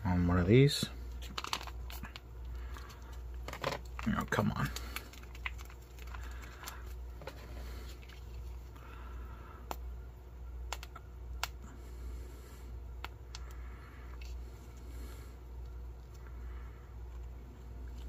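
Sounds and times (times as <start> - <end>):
low steady hum: 0.0 - 18.0
foil pouch crinkling: 1.2 - 8.7.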